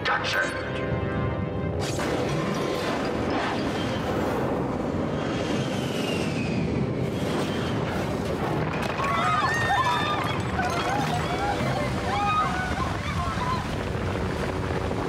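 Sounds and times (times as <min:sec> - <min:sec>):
jet whistling whine: 0:03.2 - 0:08.6.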